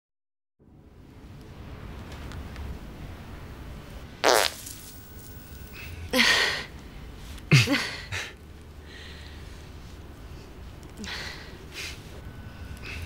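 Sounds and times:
comic fart noises: 4.2s - 4.7s.

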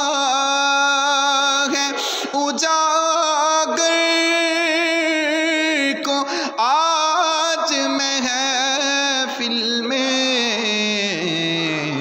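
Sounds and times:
man singing unaccompanied: 0.0s - 12.0s.

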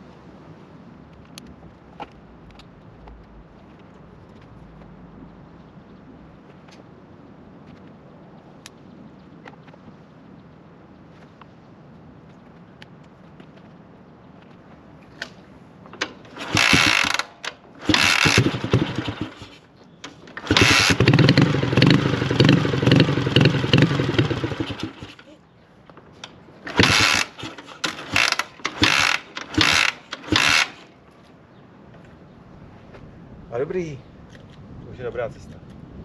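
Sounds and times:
motorcycle engine running: 16.3s - 17.2s, 17.8s - 19.6s, 20.4s - 25.3s, 26.7s - 30.8s.

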